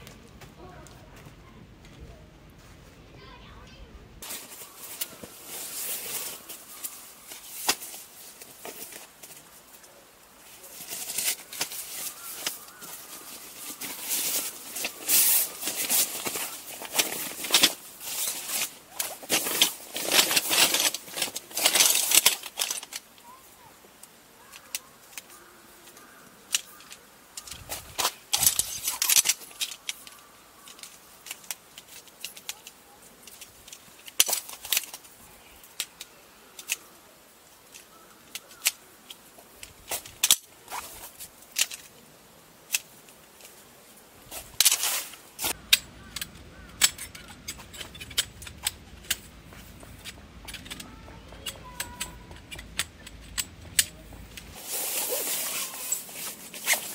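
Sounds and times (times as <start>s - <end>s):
tarp rustling and crinkling: 4.2s - 35.9s, 37.3s - 46.1s, 54.3s - 56.9s
camping gear clicks and knocks: 4.2s - 56.9s.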